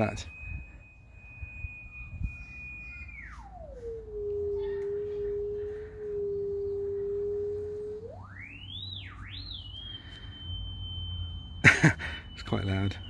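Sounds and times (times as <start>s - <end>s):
pure tone gliding in pitch: 0.0s - 13.0s.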